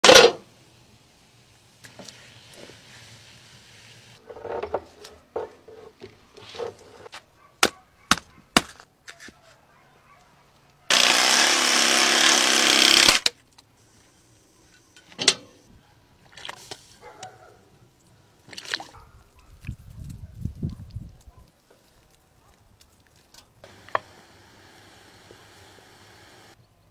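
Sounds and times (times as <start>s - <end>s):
power saw cutting bone: 10.9s - 13.3s, 23.6s - 26.6s.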